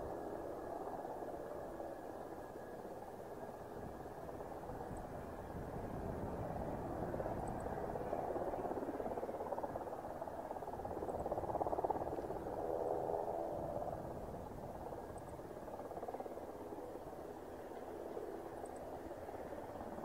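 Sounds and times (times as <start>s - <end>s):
wind on microphone: 3.8s - 16.3s.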